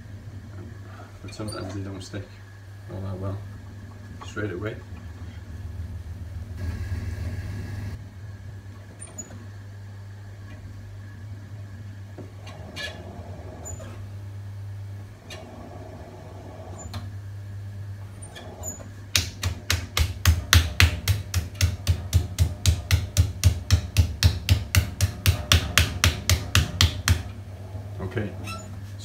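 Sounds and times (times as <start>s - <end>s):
steady low hum: 0.0s - 29.0s
hands slapping wet clay: 19.1s - 27.2s.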